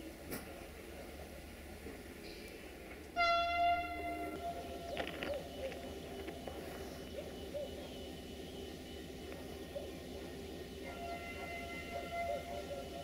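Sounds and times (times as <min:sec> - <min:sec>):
train horn blast: 0:03.2 - 0:04.9, 0:10.8 - 0:13.0.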